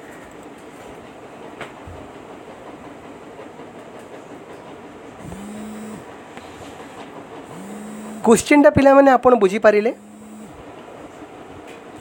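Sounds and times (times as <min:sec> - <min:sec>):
steady background noise: 0:00.0 - 0:12.0.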